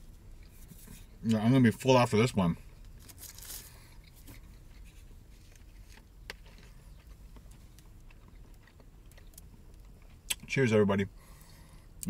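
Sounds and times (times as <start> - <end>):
quiet chewing: 3.0 - 10.5.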